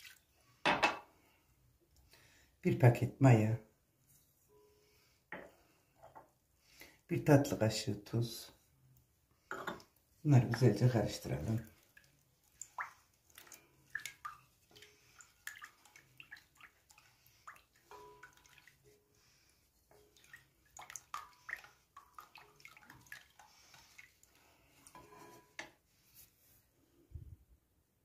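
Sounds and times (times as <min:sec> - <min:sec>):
liquid splashing: 0:00.0 - 0:00.3, 0:10.4 - 0:25.0.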